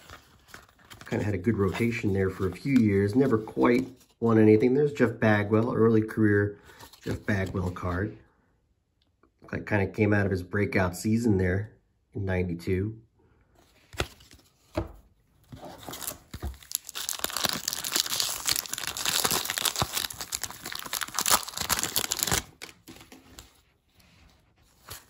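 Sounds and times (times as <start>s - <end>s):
wrapper tearing and crinkling: 15.8s - 23.0s.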